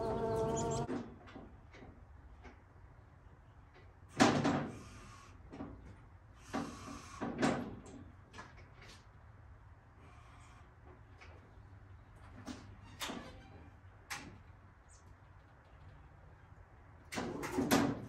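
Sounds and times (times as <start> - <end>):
electric motor noise: 0.0 - 0.9.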